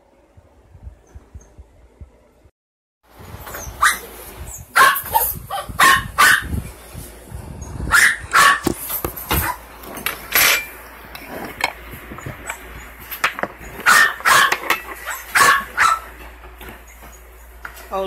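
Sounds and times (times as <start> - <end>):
dog barking: 3.8 - 4.1, 4.7 - 6.5, 7.9 - 8.7, 13.8 - 16.1.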